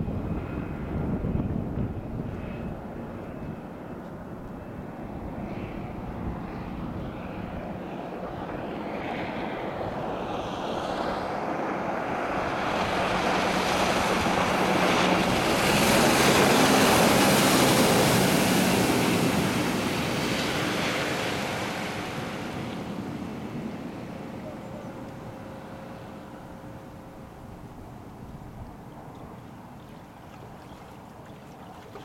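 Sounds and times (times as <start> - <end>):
speedboat engine drone: 0.0 - 32.0
hull spray rushing on water: 8.8 - 32.0.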